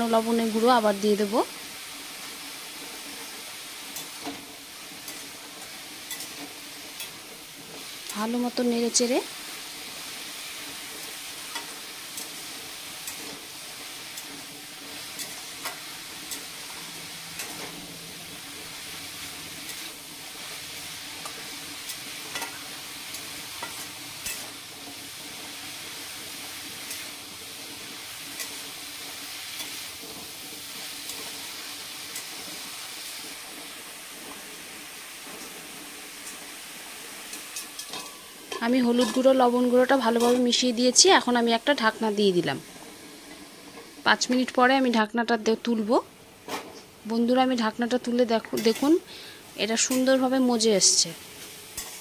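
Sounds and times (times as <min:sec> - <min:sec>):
vegetables sizzling in oil: 0:00.0 - 0:52.0
metal spatula scraping pan: 0:37.3 - 0:39.4, 0:48.5 - 0:49.1.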